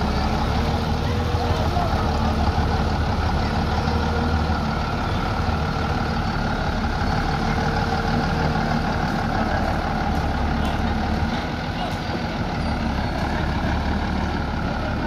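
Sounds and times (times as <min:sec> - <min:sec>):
diesel truck engine at low revs: 0:00.0 - 0:15.0.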